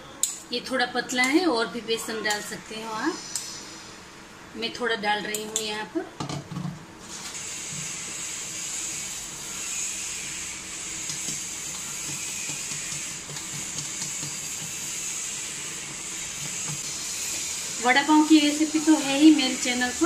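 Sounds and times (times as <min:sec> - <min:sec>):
whisk stirring batter in steel bowl: 0:10.2 - 0:19.7.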